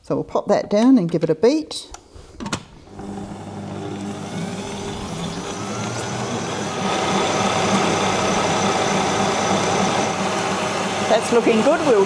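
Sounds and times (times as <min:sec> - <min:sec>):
stand mixer motor whine: 0:02.9 - 0:12.0.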